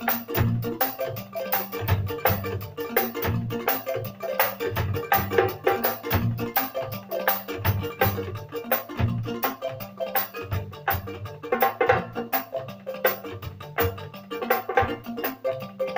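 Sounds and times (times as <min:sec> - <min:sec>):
electric bass line: 0:00.0 - 0:15.9
keyboard playing: 0:00.0 - 0:15.9
steady beat: 0:00.0 - 0:15.9.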